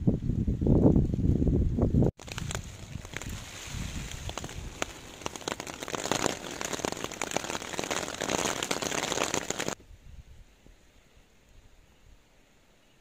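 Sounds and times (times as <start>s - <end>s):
rain pattering on tarp: 2.2s - 9.8s.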